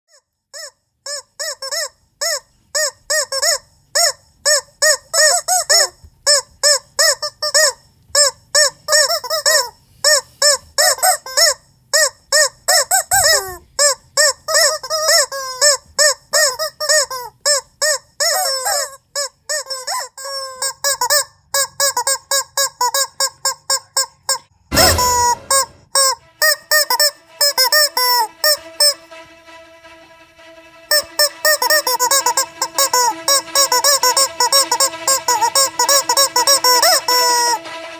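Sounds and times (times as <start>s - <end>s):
rubber chicken toys squeaking: 0.1s - 29.0s, 30.9s - 37.6s
loud thump: 24.7s - 25.9s.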